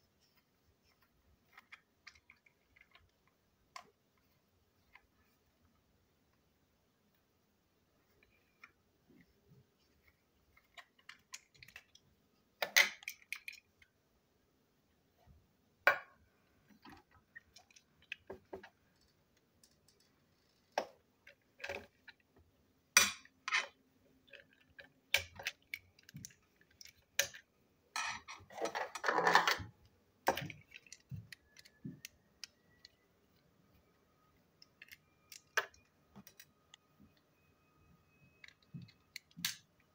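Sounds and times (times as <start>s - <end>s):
plastic parts clicking and clattering: 0.2s - 5.1s, 10.0s - 14.0s, 16.6s - 22.4s, 23.0s - 33.4s, 34.6s - 37.2s, 38.3s - 39.9s.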